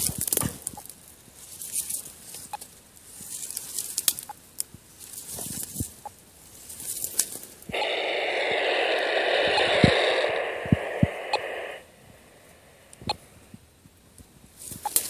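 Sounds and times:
dry grass rustling: 0.1s - 7.6s
radio receiver static hiss: 7.7s - 13.5s.

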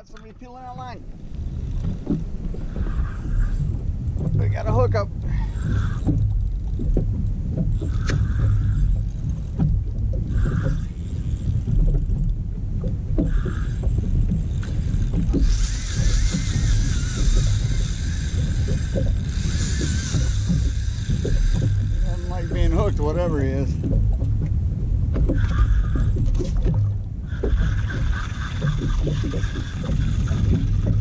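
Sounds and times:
steady low rumble: 0.0s - 31.0s
fishing reel drag buzzing: 1.2s - 3.7s, 5.3s - 6.8s, 7.8s - 9.6s, 10.3s - 11.7s, 13.3s - 23.8s, 25.4s - 26.4s, 27.3s - 31.0s.

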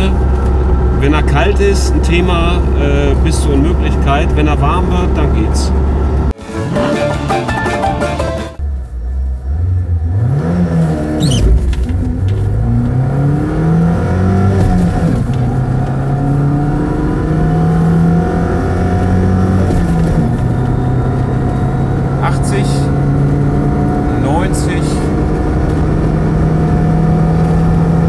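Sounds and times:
car engine accelerating: 0.0s - 28.0s.

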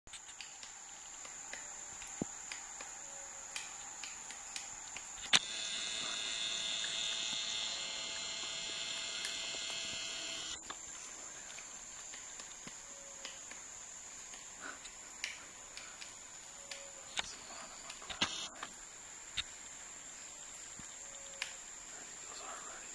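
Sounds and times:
faint ticks: 0.1s - 19.8s, 20.5s - 22.9s
dense buzzing insect chorus: 0.1s - 22.9s
high-pitched insect drone: 0.2s - 22.9s
sharp click: 3.6s - 10.6s, 16.7s - 18.7s.

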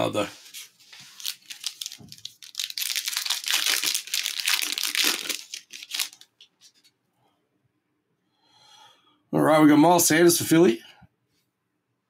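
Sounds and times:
wrapper tearing and crinkling: 0.9s - 6.7s.

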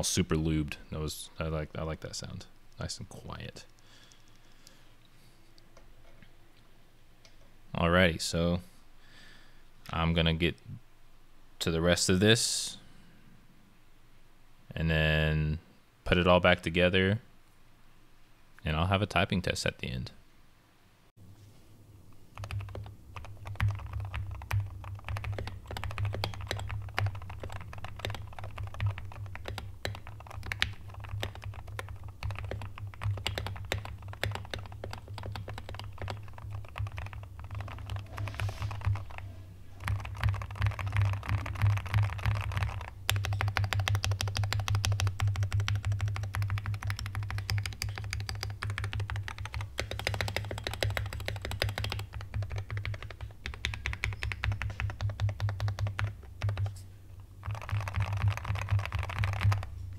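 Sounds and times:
keyboard typing clacks: 22.3s - 39.2s, 39.8s - 56.8s, 57.4s - 59.7s.

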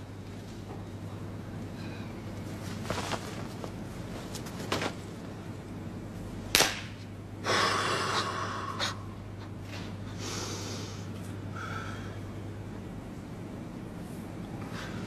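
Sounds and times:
sharp smack: 6.5s - 7.0s.

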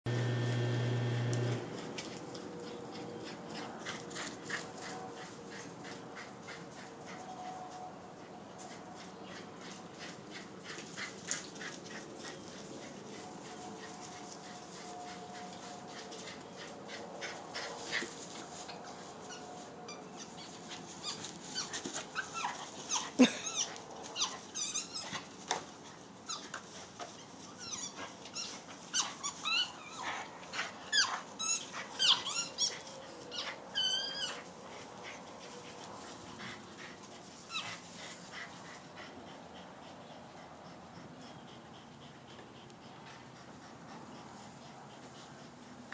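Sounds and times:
animal whining and yelping: 19.2s - 25.3s, 26.3s - 34.5s.

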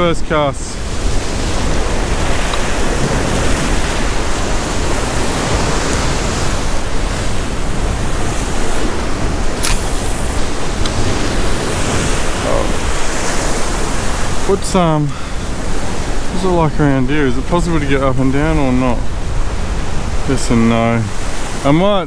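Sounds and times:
ocean swell against rocks: 0.0s - 21.7s
wind buffeting microphone: 0.0s - 22.0s
sharp click: 9.6s - 11.0s.

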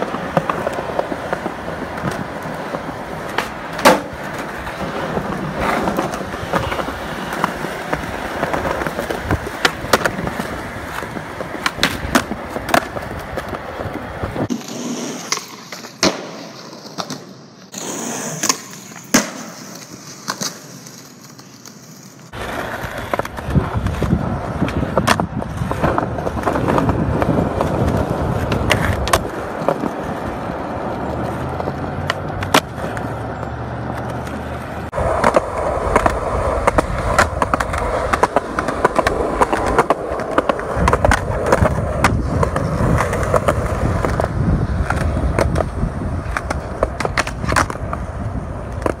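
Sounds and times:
skateboard clacks: 0.0s - 49.0s
skateboard wheels rolling on concrete: 0.0s - 49.0s.

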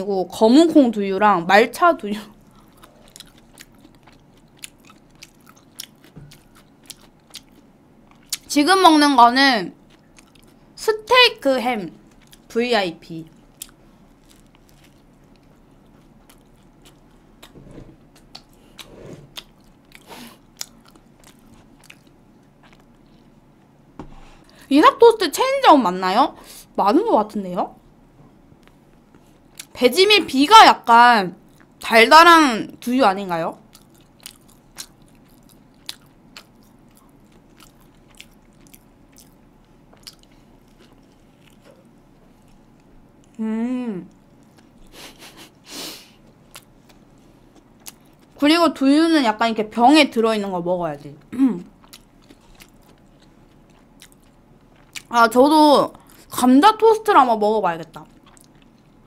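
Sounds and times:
low room hum: 0.0s - 59.0s
close-miked chewing: 2.4s - 8.5s, 9.8s - 10.6s, 12.0s - 12.6s, 13.2s - 23.4s, 28.6s - 29.8s, 33.6s - 43.4s, 44.1s - 45.5s, 46.2s - 48.4s, 50.9s - 56.3s, 57.8s - 59.0s.

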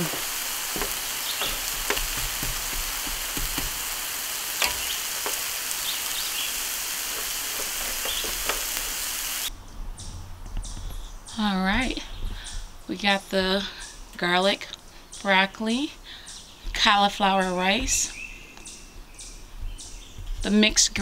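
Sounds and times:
vegetables sizzling on a griddle: 0.0s - 9.5s.

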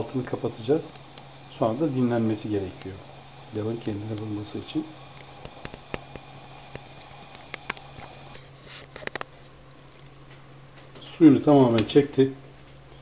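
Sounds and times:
steady low hum: 0.0s - 13.0s
pops and ticks of simmering rice: 0.2s - 1.4s, 3.8s - 12.0s.

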